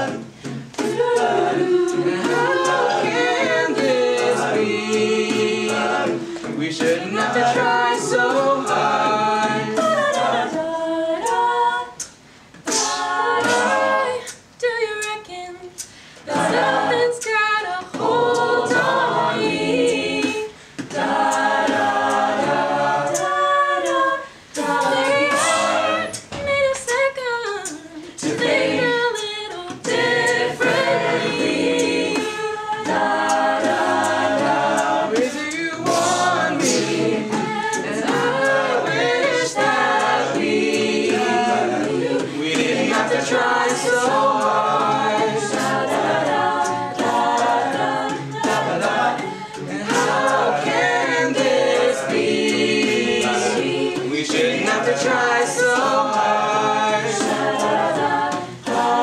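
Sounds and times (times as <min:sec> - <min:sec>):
a cappella group singing: 0:00.0 - 0:59.0
beatboxing into a microphone: 0:00.0 - 0:59.0.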